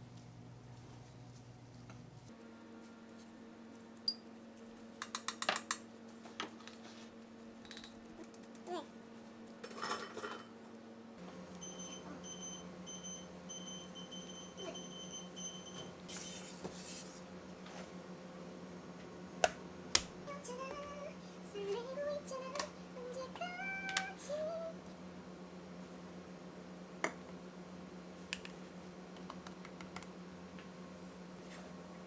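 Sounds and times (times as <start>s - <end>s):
steady electrical hum: 0.0s - 32.0s.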